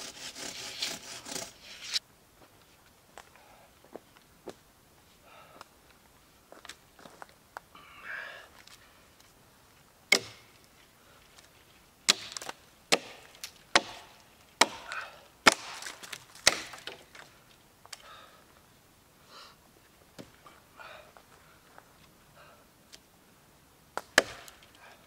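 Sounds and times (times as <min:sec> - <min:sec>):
axe chopping into a log: 0:10.1 - 0:10.5, 0:12.1 - 0:17.0, 0:24.0 - 0:24.6.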